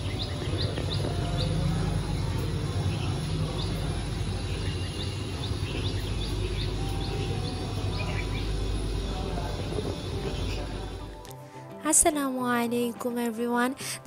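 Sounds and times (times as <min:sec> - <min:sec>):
small birds chirping: 0:00.0 - 0:11.1
low outdoor rumble: 0:00.0 - 0:11.3.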